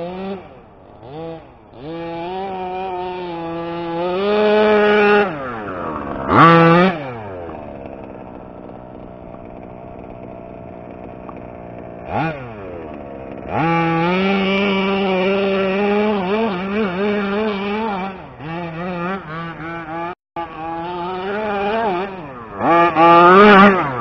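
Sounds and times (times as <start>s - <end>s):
two-stroke engine revving: 0.0s - 24.0s.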